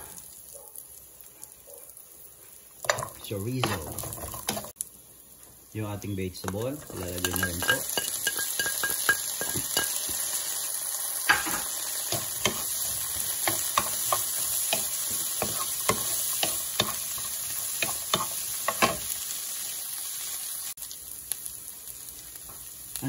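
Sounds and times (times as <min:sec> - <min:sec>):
food sizzling in oil: 0:00.0 - 0:23.0
wooden spoon scraping a pan: 0:02.9 - 0:04.8, 0:11.3 - 0:19.0.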